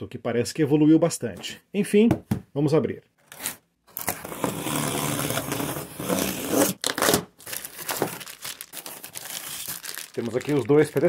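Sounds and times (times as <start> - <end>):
utility knife cutting cardboard: 4.0 - 7.2.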